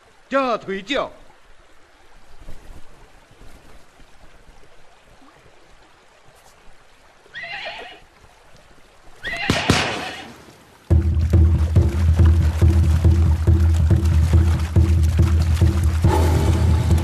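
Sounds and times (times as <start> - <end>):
horse whinnying: 7.3 - 8.0, 9.2 - 10.4.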